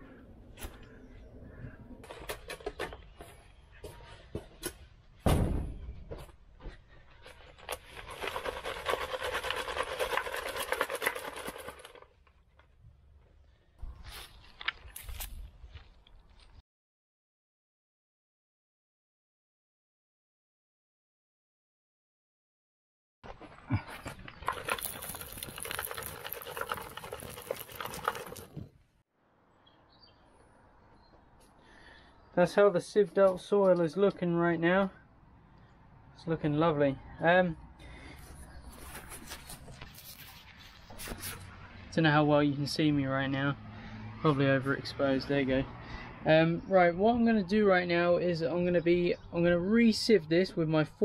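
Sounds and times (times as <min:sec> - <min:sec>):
thump: 0:05.2 - 0:06.2
soil rattling in a sieve: 0:07.5 - 0:12.3, 0:24.4 - 0:28.7.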